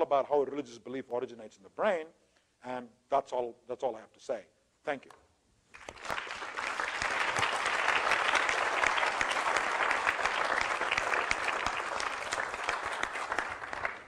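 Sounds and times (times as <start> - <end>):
audience applause: 5.8 - 14.0.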